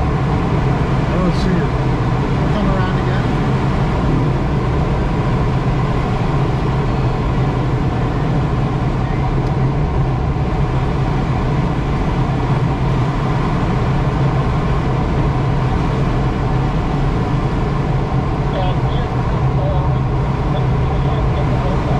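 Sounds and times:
loud rushing noise: 0:00.0 - 0:06.8
low drone: 0:00.0 - 0:21.9.

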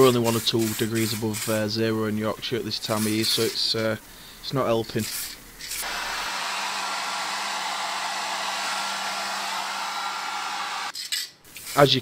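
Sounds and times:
hair dryer running: 0:05.8 - 0:10.9.

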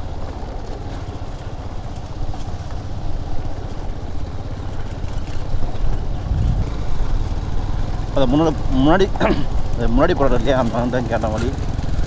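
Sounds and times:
motorcycle engine running: 0:00.0 - 0:12.0
rattles from bumpy track: 0:03.4 - 0:12.0.

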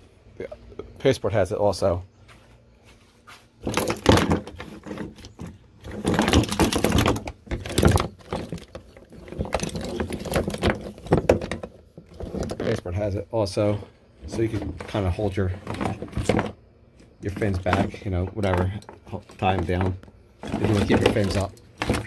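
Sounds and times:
rustling clicks and knocks on kayak: 0:03.6 - 0:12.8, 0:17.2 - 0:22.0.

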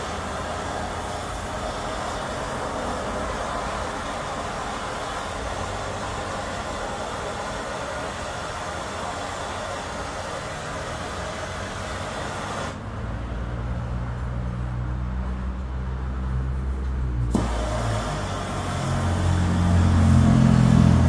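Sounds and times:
gas torch hissing: 0:00.0 - 0:12.9, 0:17.3 - 0:21.0.

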